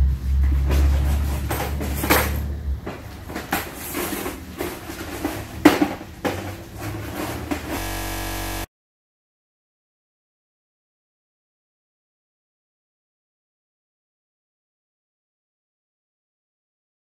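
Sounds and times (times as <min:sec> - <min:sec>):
low steady hum: 0:07.7 - 0:08.7.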